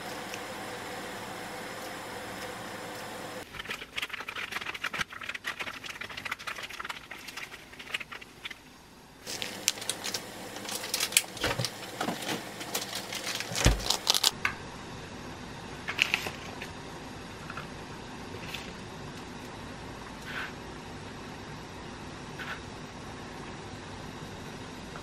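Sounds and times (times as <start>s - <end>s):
plastic bag crinkling: 9.2s - 14.4s.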